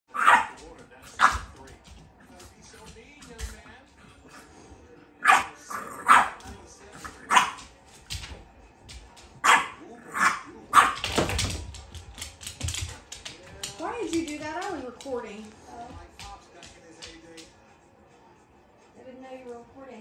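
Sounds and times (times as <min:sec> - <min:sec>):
dog barking: 0:00.1 - 0:01.6, 0:05.2 - 0:07.7, 0:09.4 - 0:11.2
dog running on hardwood floor: 0:00.2 - 0:04.3, 0:06.1 - 0:09.7, 0:10.7 - 0:17.7.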